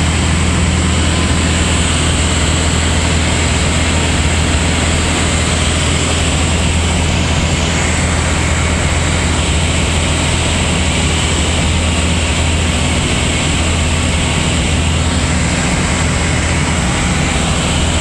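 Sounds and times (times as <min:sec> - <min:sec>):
aircraft engine and propeller droning: 0:00.0 - 0:18.0
rushing air noise: 0:00.0 - 0:18.0.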